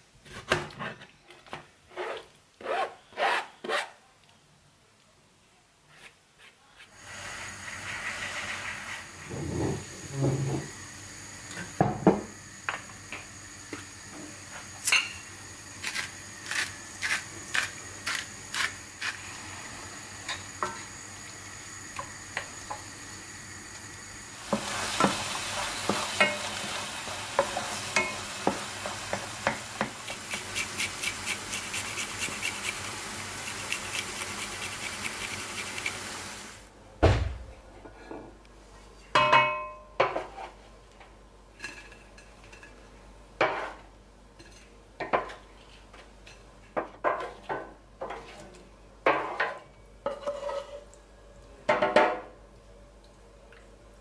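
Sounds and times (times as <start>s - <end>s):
tomatoes sizzling in a frying pan: 7.0s - 36.7s
wooden spatula scraping pan: 50.1s - 50.8s.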